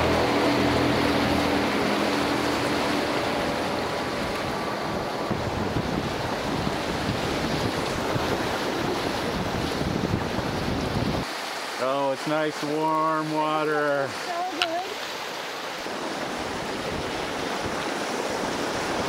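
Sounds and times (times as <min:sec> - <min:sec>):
wind buffeting microphone: 0:00.0 - 0:11.3, 0:15.8 - 0:19.0
river rapids rushing: 0:00.0 - 0:19.0.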